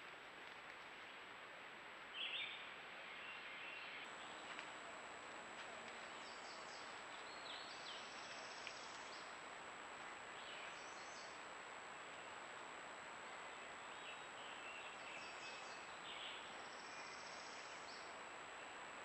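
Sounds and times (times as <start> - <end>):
steady hiss: 0.0 - 19.0
thin high whine: 4.0 - 19.0.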